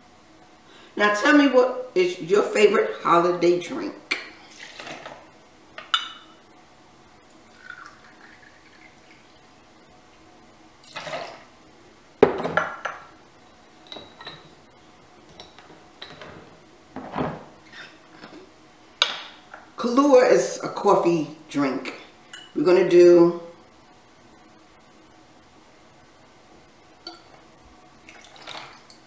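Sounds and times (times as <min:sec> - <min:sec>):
liquid pouring and splashing: 0:04.5 - 0:05.1, 0:10.8 - 0:11.5, 0:28.0 - 0:29.0.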